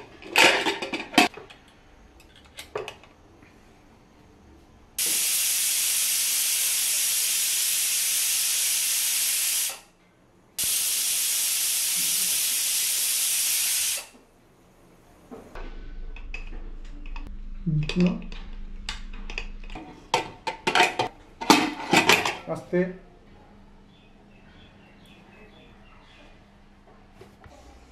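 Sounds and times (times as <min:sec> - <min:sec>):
pressure cooker hissing steam: 0:05.0 - 0:09.9, 0:10.6 - 0:14.2.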